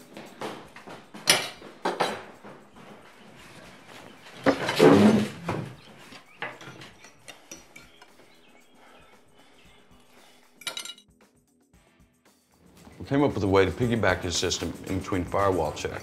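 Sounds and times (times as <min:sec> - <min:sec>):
cutlery clicking on plates: 0:01.2 - 0:02.3, 0:06.4 - 0:08.2.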